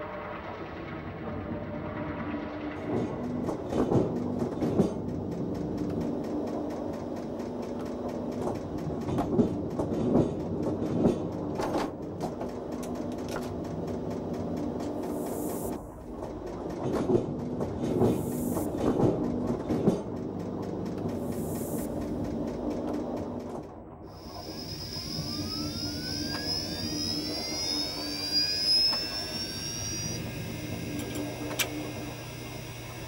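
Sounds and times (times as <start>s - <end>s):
rhythmic train clatter: 0.0s - 33.0s
rising sci-fi whines: 24.1s - 33.0s.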